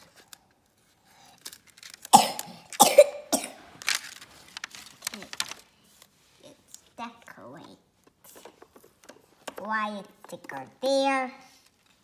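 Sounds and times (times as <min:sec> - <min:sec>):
person coughing: 0:02.1 - 0:03.6.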